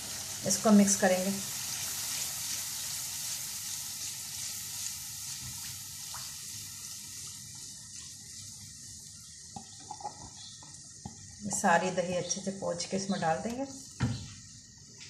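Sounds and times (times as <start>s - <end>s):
masala sizzling in frying pan: 0.0s - 15.0s
wooden spoon stirring: 3.7s - 11.9s.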